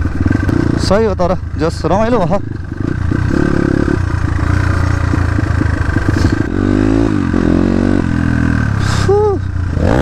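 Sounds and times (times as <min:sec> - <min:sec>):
dirt bike engine revving: 0:00.0 - 0:10.0.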